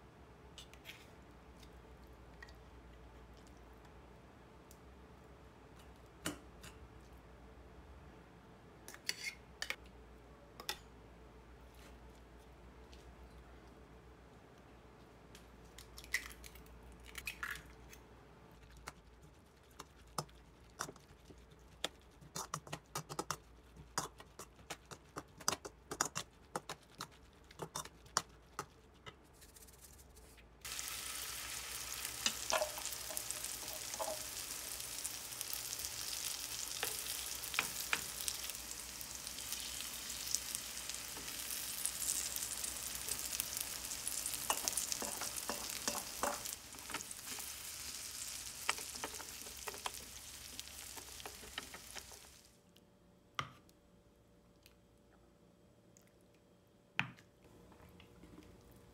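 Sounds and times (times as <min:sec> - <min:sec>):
pancakes sizzling in oil: 0:30.6 - 0:52.5.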